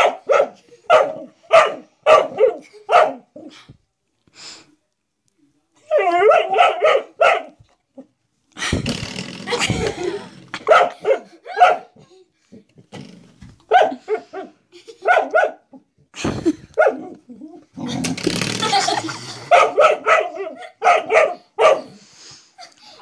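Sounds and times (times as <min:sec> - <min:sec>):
dog barking: 0:00.0 - 0:03.5, 0:06.0 - 0:07.6, 0:10.6 - 0:12.0, 0:13.7 - 0:15.8, 0:16.8 - 0:17.2, 0:19.5 - 0:22.0.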